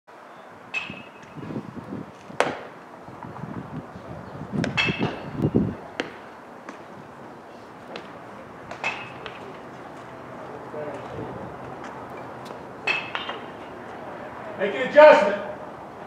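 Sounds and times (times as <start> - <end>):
voices calling out: 0.4 - 16.0
bat cracking a baseball: 2.2 - 2.8, 6.0 - 6.8, 12.9 - 13.6.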